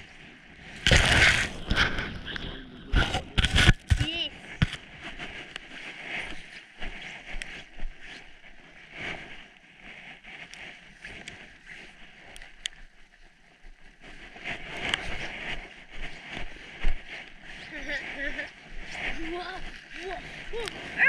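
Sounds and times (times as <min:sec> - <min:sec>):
wind buffeting microphone: 0:00.0 - 0:21.0
light ticks: 0:12.2 - 0:12.8.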